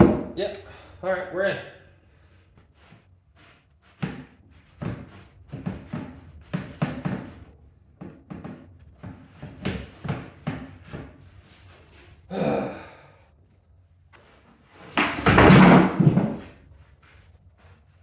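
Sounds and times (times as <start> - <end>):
wooden knocks and rubbing: 0.0 - 0.4, 2.6 - 11.7, 14.2 - 18.0.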